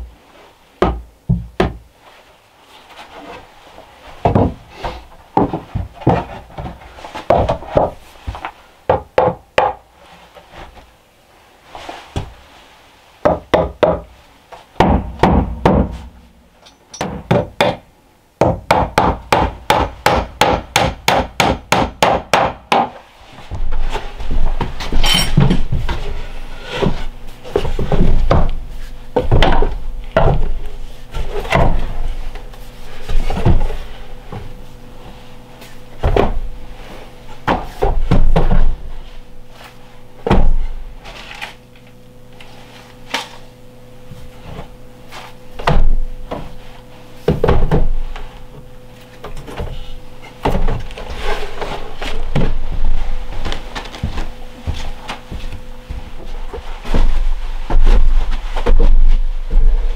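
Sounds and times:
faint steady hum: 0:00.0 - 0:59.9
wooden crate knocks and thumps: 0:00.8 - 0:01.9, 0:04.2 - 0:09.8, 0:14.8 - 0:16.1, 0:26.8 - 0:30.6, 0:47.3 - 0:48.0, 0:50.4 - 0:51.0, 0:51.7 - 0:59.9.

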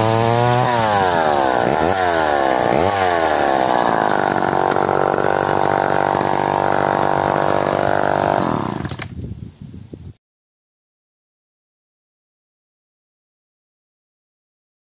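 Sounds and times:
chainsaw revving: 0:00.0 - 0:09.1.

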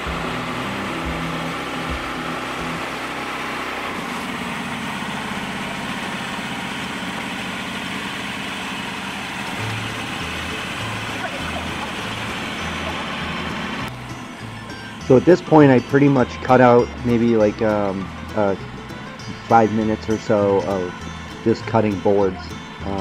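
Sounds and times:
band saw blade cutting wood: 0:00.0 - 0:07.7
sawmill engine running: 0:00.0 - 0:23.0.

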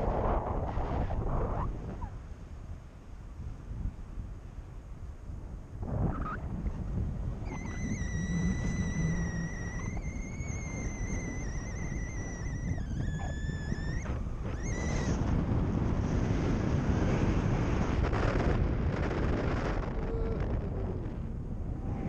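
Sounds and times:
wind rushing over microphone: 0:00.0 - 0:22.0
steady high-pitched tone: 0:07.4 - 0:15.2.

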